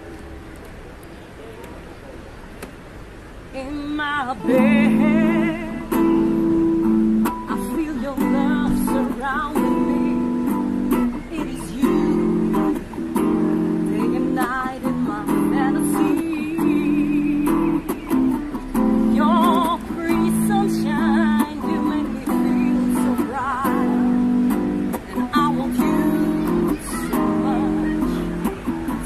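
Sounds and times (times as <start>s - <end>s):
person singing: 3.6s - 29.0s
acoustic guitar strumming: 4.2s - 29.0s.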